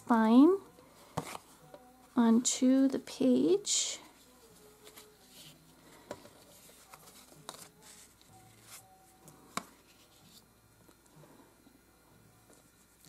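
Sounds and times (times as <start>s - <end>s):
paper handling: 4.4s - 10.4s.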